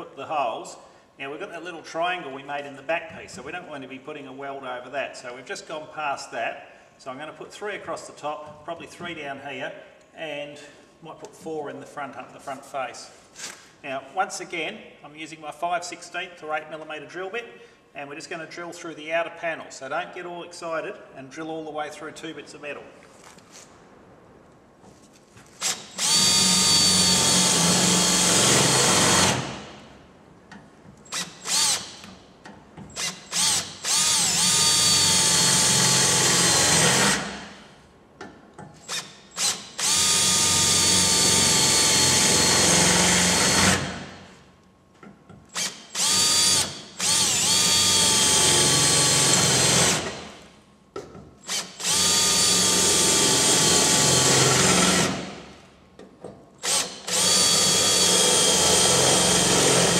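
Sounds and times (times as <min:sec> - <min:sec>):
cordless drill drilling metal: 0:25.6 - 0:29.6, 0:31.1 - 0:32.1, 0:32.9 - 0:37.4, 0:38.8 - 0:44.1, 0:45.5 - 0:50.4, 0:51.4 - 0:55.3, 0:56.6 - 0:59.9.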